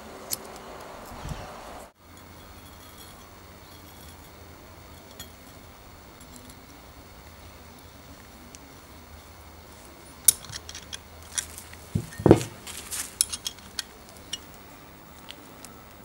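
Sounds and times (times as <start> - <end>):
dull knock: 12.0 - 12.6.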